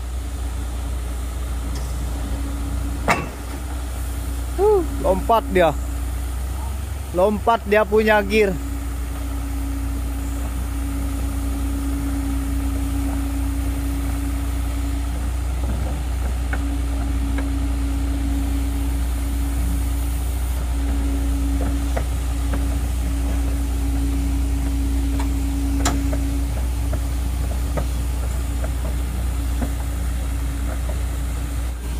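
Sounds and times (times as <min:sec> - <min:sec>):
excavator diesel engine whine: 0:00.0 - 0:31.9
sharp metal clanks: 0:03.0 - 0:03.6.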